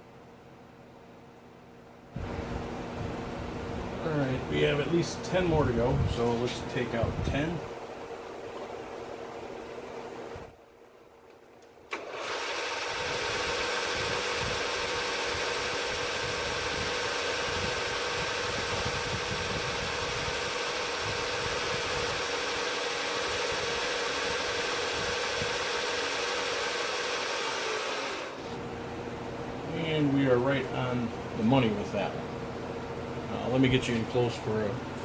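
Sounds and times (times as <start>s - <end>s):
milling machine spindle humming: 12.0s - 29.2s.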